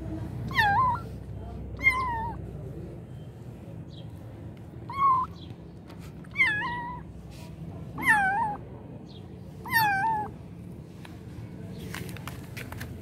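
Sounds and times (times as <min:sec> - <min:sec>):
kitten meowing: 0:00.5 - 0:01.2, 0:01.8 - 0:02.4, 0:04.9 - 0:05.4, 0:06.2 - 0:07.1, 0:08.0 - 0:08.6, 0:09.6 - 0:10.4.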